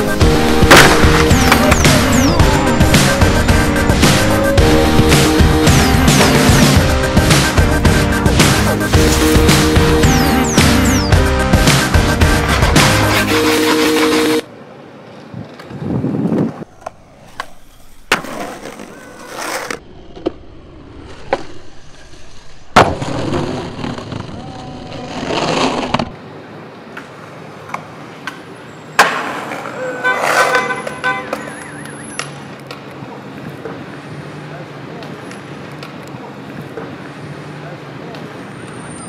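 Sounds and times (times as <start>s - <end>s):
skateboard wheels rolling on pavement: 0.0s - 38.8s
skateboard pops and landing smacks: 0.7s - 2.0s, 16.8s - 20.4s, 22.7s - 24.3s, 29.0s - 31.4s.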